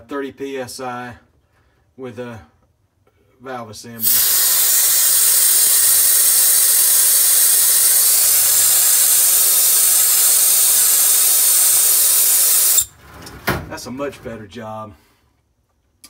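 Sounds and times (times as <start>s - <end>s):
sandblasting gun hissing: 4.0s - 12.9s.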